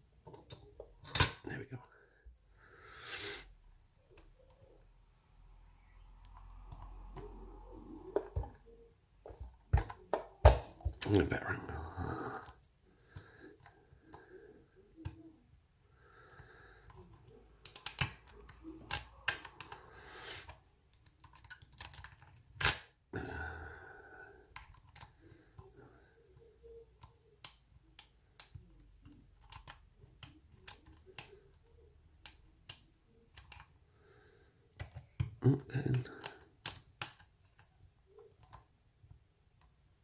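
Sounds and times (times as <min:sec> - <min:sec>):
lock pick clicking and scraping: 0:17.6 - 0:19.8, 0:20.4 - 0:22.9.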